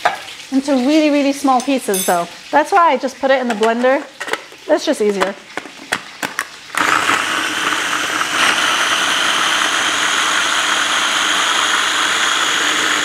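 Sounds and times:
food chopper motor running: 6.7 - 13.0.

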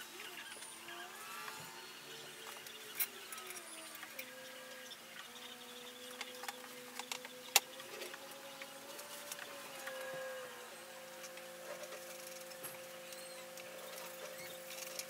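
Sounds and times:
faint hum: 0.0 - 15.0.

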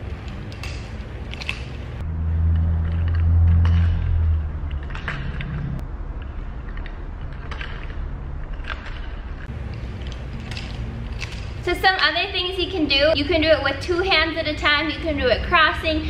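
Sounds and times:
low rumble: 0.0 - 11.7
nunchuck chain clicking: 0.2 - 1.8, 7.3 - 12.1.

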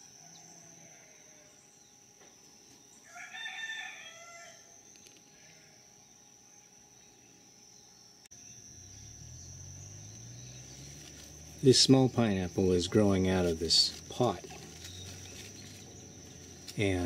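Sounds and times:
high insect drone: 0.0 - 17.0
low steady hum: 3.9 - 17.0.

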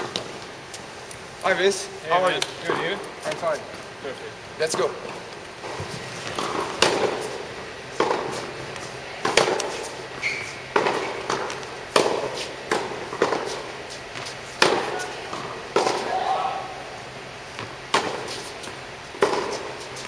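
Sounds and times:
tennis ball bouncing: 5.6 - 16.3, 17.5 - 20.0
tennis ball struck by racket: 5.7 - 7.4, 8.0 - 10.0, 10.7 - 16.2, 17.6 - 18.5, 19.1 - 19.8.

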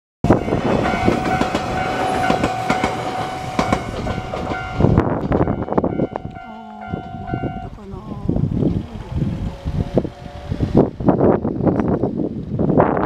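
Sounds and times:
train wheels clattering over rails: 0.3 - 6.4
level crossing warning bell: 0.3 - 7.8.

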